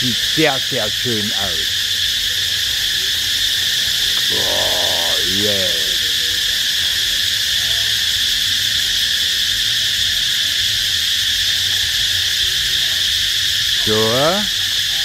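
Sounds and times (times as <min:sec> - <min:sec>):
insect chorus drone: 0:00.0 - 0:15.0.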